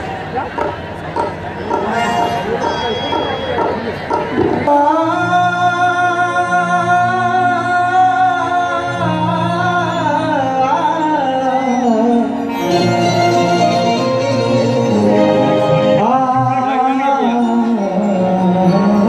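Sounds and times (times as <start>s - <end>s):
man singing through a pa: 4.6s - 19.0s.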